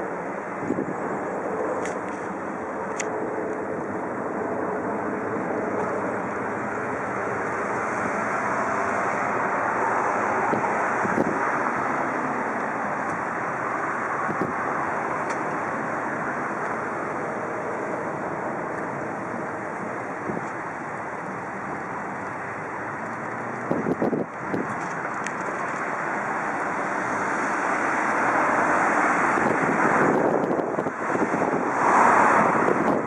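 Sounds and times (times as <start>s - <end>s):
jet airliner roar overhead: 0.0s - 33.0s.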